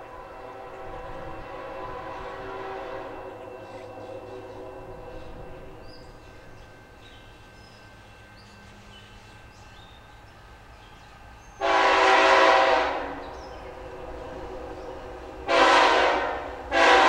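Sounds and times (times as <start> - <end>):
locomotive air horn: 0.0 - 5.5, 11.6 - 13.4, 14.0 - 17.0.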